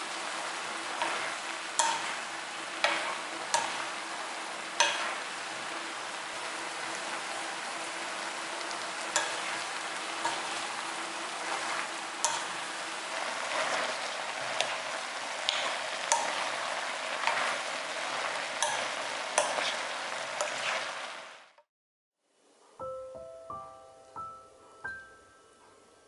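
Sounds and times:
vegetables sizzling in a wok: 0.0s - 21.7s
spoon knocking the pan: 1.8s - 2.1s, 2.8s - 3.8s, 4.8s - 5.2s, 9.1s - 9.5s, 12.2s - 12.6s.

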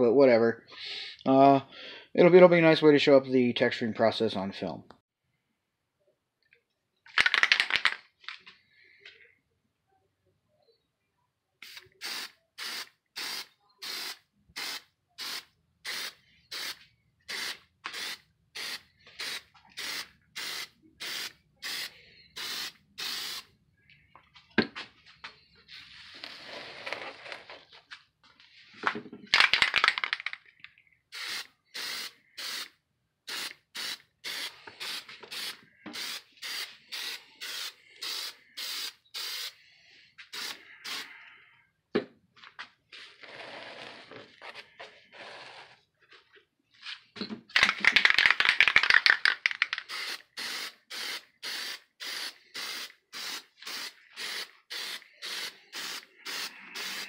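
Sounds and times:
aerosol spray can hissing: 11.6s - 23.5s, 31.2s - 32.7s, 33.3s - 39.6s, 40.3s - 41.1s, 47.9s - 57.0s.

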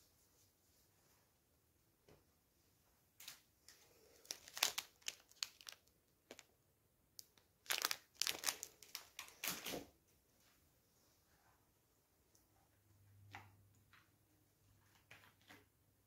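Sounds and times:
paper wrapper crinkling: 4.1s - 6.5s, 7.2s - 9.8s.

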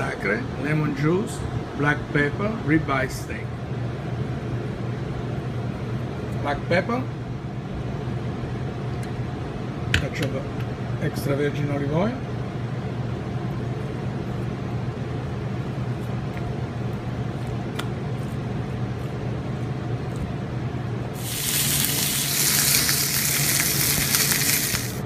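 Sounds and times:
steady low hum: 0.0s - 25.0s
steak sizzling on grill pan: 21.2s - 25.0s.

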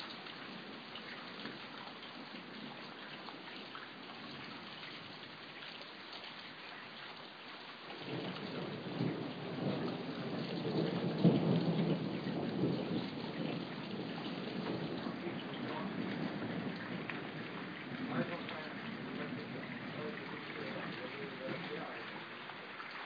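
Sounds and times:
steady rain: 0.0s - 23.0s
thunder rumble: 8.0s - 22.8s.

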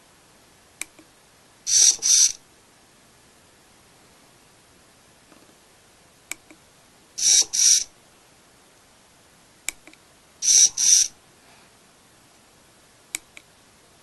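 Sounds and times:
servo motor whirring buzz: 1.7s - 2.4s, 7.2s - 7.8s.

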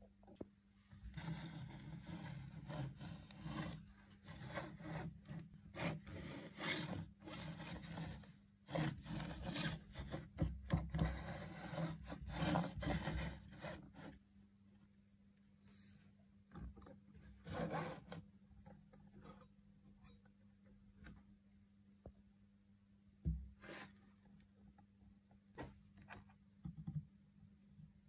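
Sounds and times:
rasping on metal part: 10.9s - 14.2s.

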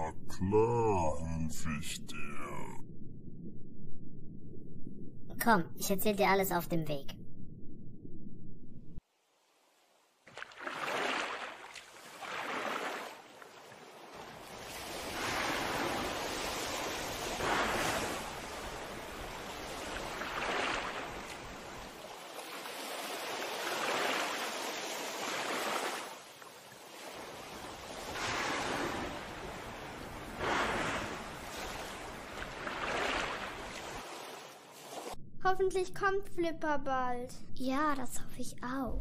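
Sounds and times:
sea waves washing: 9.6s - 35.2s.

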